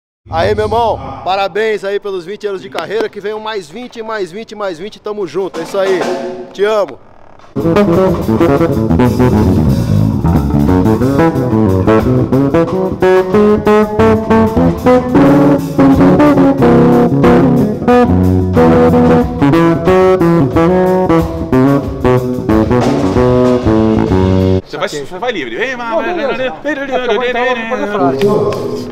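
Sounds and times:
electric bass guitar plucking: 0.3s - 1.3s, 7.5s - 24.6s.

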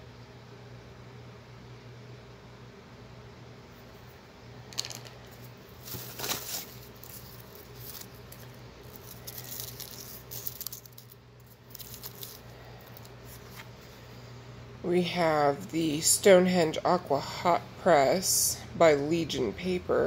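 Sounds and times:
paper shred rustling in box: 5.7s - 13.7s.

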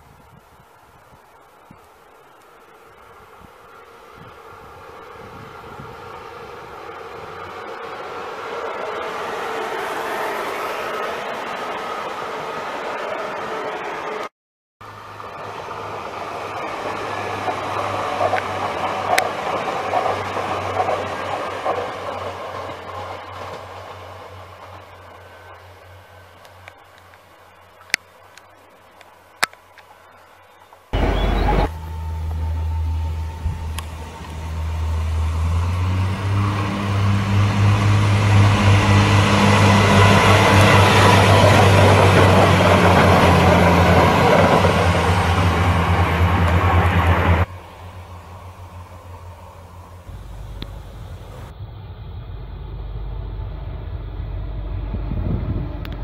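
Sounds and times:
train hum and wheel noise: 0.0s - 56.0s
wheels clicking over rail joints: 15.2s - 34.9s, 38.3s - 51.5s.

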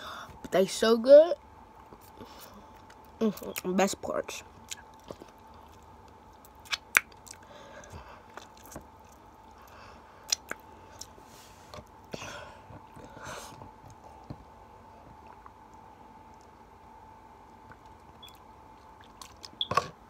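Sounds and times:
chewing and lip-smacking: 1.8s - 3.7s, 4.6s - 11.9s, 15.0s - 16.6s, 17.5s - 19.9s.

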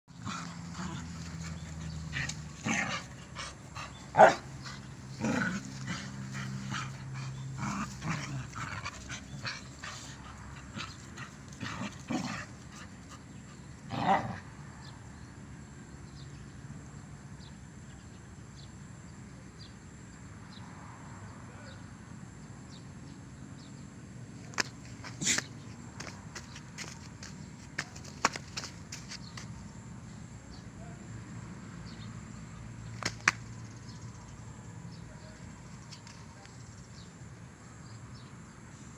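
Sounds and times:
dogs play-fighting: 0.1s - 14.4s, 24.5s - 29.5s.

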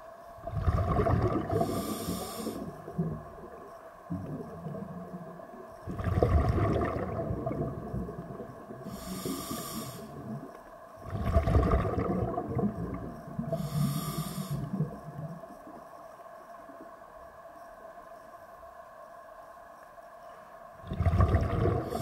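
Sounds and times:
exhaled bubbles rumbling: 0.4s - 15.8s, 20.8s - 22.0s
regulator hissing inhale: 1.6s - 3.0s, 8.8s - 10.2s, 13.4s - 14.9s.

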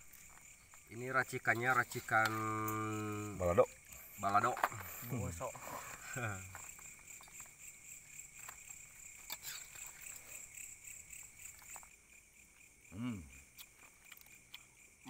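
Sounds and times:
crickets chirping: 0.0s - 15.0s
person humming: 13.0s - 13.3s.

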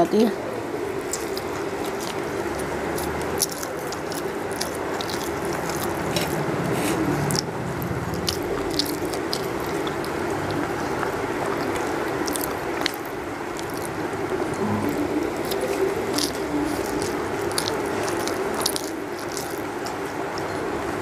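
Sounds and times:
steady low hum: 0.0s - 21.0s
person chewing: 0.9s - 20.6s
fingers mixing rice on steel plate: 1.0s - 7.5s, 15.0s - 20.5s.

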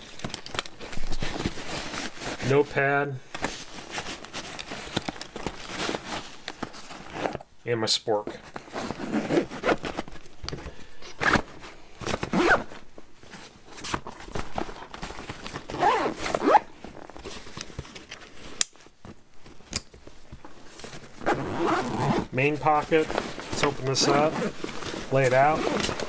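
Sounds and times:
fabric rustling: 0.0s - 7.4s, 11.2s - 26.0s
backpack zippers pulled: 12.3s - 12.6s, 15.8s - 16.7s, 21.2s - 22.3s, 25.5s - 26.0s.

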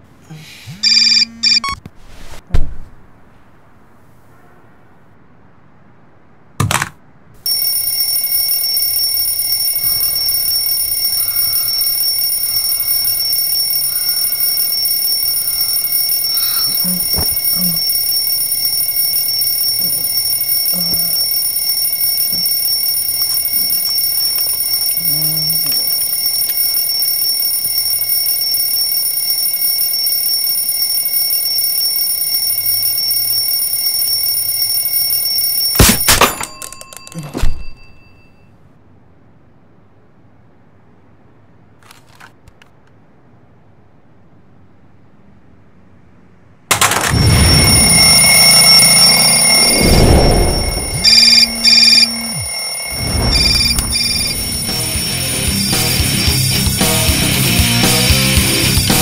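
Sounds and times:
electronic alarm ringing: 0.8s - 1.8s, 7.4s - 38.5s, 46.7s - 59.0s.

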